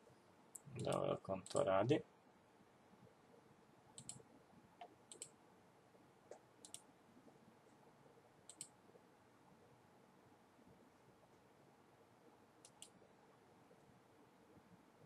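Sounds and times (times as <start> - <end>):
faint room hiss: 0.0 - 15.0
computer mouse clicking: 4.0 - 4.2, 4.8 - 5.4, 6.3 - 6.9, 8.5 - 8.8, 12.6 - 13.0.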